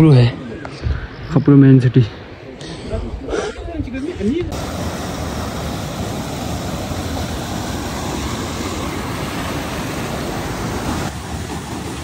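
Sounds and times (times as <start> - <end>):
water rushing over boulders: 4.5 - 12.0.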